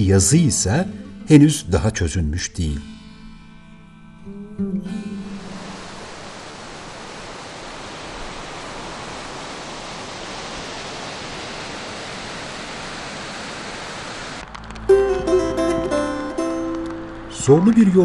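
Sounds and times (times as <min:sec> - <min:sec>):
river rushing: 0:05.1 - 0:14.8.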